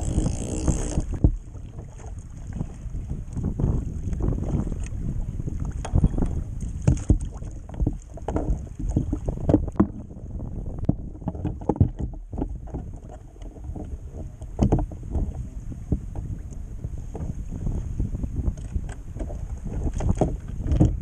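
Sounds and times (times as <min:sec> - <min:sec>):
waves slapping against kayak hull: 0:00.0 - 0:21.0
wind buffeting microphone: 0:00.0 - 0:21.0
knocks from boat and gear: 0:01.0 - 0:02.1, 0:05.6 - 0:10.1, 0:10.8 - 0:16.4, 0:18.4 - 0:21.0.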